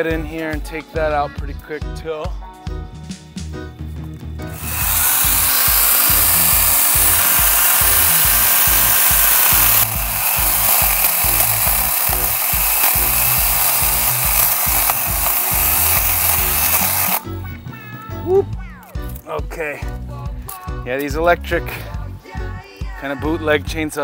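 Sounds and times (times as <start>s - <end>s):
electric chainsaw cutting bamboo: 4.5s - 17.3s.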